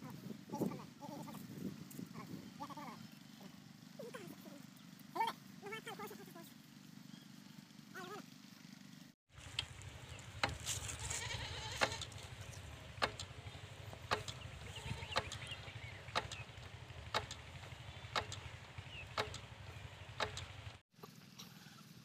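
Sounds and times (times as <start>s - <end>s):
diesel engine droning: 8.4s - 20.8s
sharp ticks: 11.7s - 20.8s.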